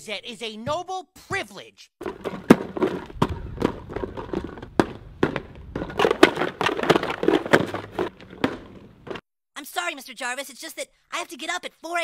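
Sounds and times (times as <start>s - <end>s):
box slammed onto asphalt: 2.0s - 9.2s.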